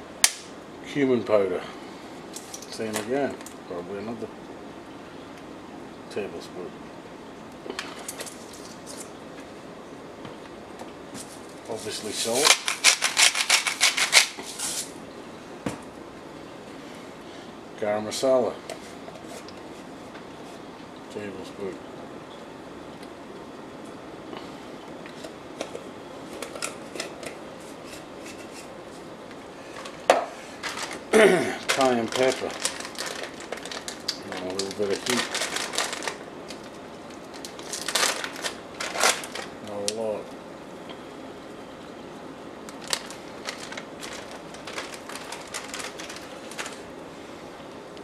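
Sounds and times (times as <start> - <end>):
foil packet crinkling: 7.8 - 9.2, 11.2 - 15.0, 29.7 - 40.0, 42.6 - 46.9.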